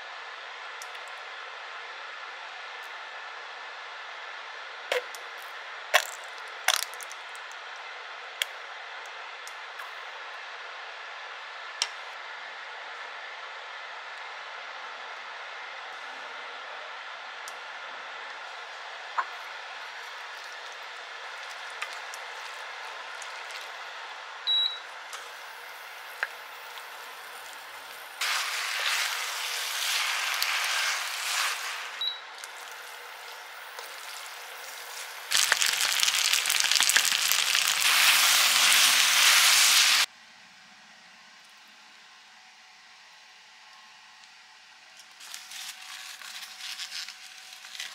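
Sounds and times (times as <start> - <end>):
pasta sizzling in a frying pan: 25.2 - 40.1
pasta tossed with metal tongs: 33.8 - 40.1.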